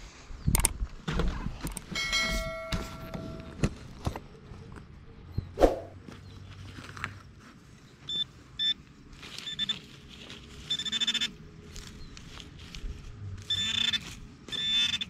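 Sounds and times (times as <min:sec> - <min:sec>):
metal detector beeping: 0:01.9 - 0:03.6, 0:08.1 - 0:08.8, 0:09.4 - 0:09.9, 0:10.6 - 0:11.4, 0:13.4 - 0:15.0.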